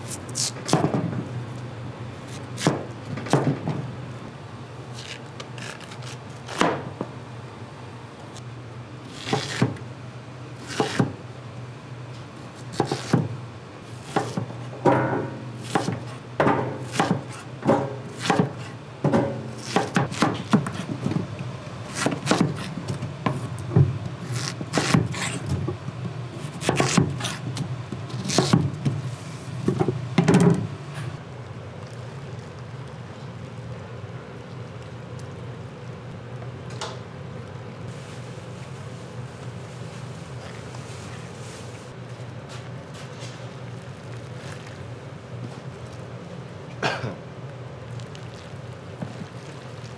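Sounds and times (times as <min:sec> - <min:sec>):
knife chopping on wooden board: 0:10.7 - 0:11.1, 0:12.7 - 0:13.3, 0:14.0 - 0:20.9, 0:24.4 - 0:25.3, 0:26.6 - 0:27.4.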